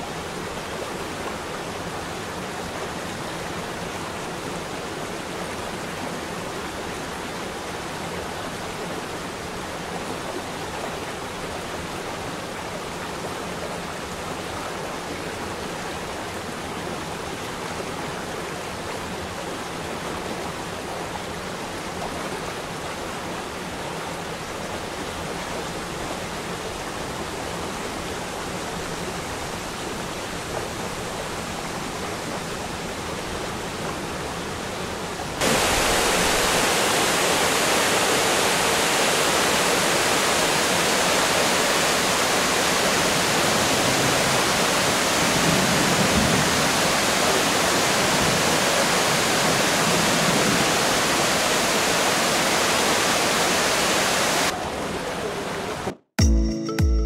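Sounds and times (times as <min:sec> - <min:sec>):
waterfall rushing: 0:24.3 - 0:55.8.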